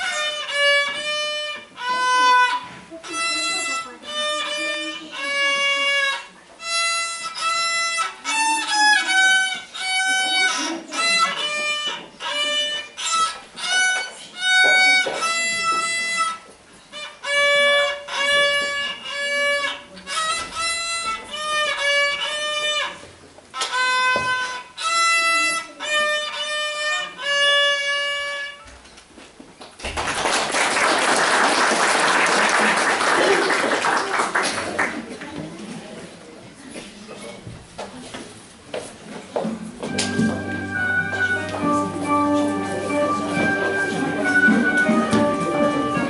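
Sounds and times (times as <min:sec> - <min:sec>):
solo violin melody: 0:00.0 - 0:28.7, 0:39.9 - 0:46.0
audience applauding: 0:29.8 - 0:35.4.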